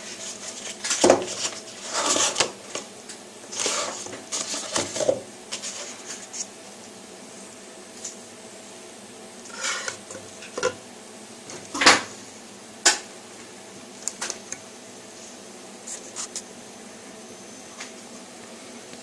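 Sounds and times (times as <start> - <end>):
ceramic cup moved on table: 9.5 - 10.8.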